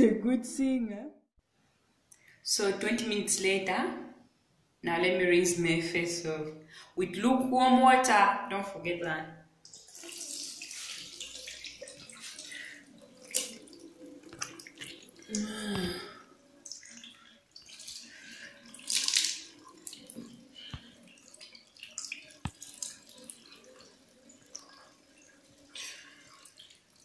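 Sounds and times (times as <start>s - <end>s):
water splashing and dripping: 9.6s - 27.0s.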